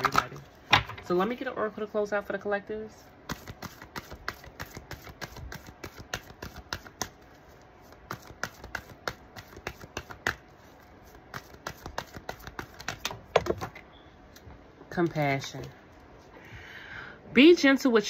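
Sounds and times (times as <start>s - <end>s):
cards being shuffled: 3.3s - 13.8s.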